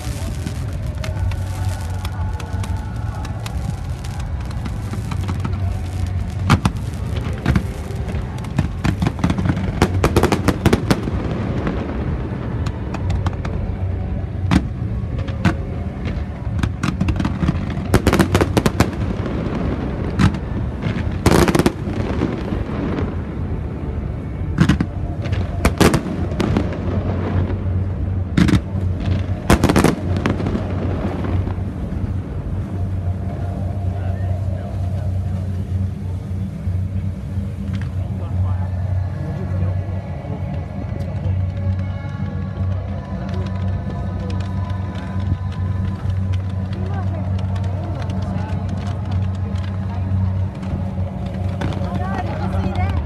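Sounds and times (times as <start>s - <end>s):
fireworks bangs and crackling: 0.0s - 53.0s
low drone: 0.0s - 53.0s.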